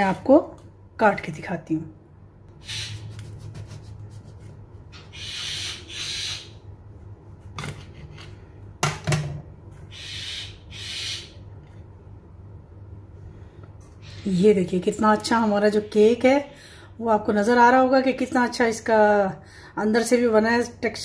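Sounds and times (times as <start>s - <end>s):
knife sawing through cake: 2.8s - 4.5s.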